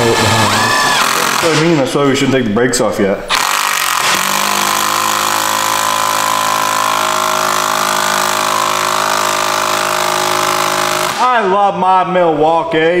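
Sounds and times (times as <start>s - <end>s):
cordless screwdriver motor whine: 0.1s - 1.5s, 3.3s - 11.2s.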